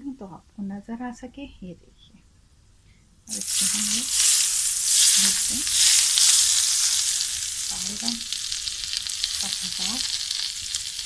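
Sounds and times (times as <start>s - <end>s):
hot oil sizzling: 3.3s - 11.0s.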